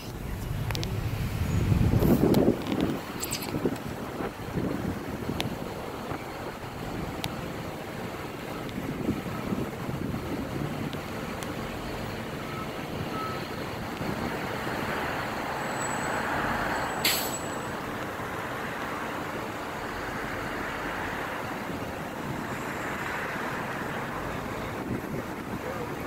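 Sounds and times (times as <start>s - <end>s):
wind buffeting microphone: 0.0s - 15.2s, 24.6s - 26.0s
steady traffic noise: 0.0s - 26.0s
sharp hiss: 17.0s - 17.5s.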